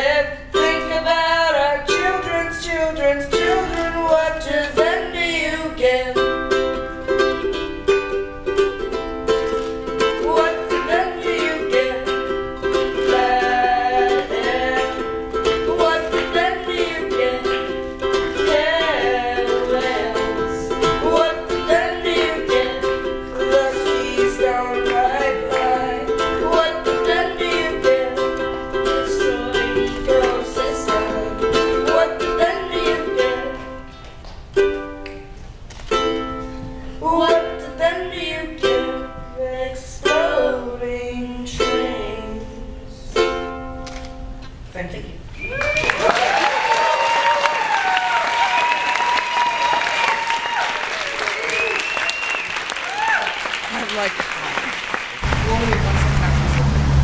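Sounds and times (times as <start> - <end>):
person singing: 0.0 - 7.2, 10.0 - 33.8
ukulele strumming: 0.0 - 44.7, 55.2 - 57.0.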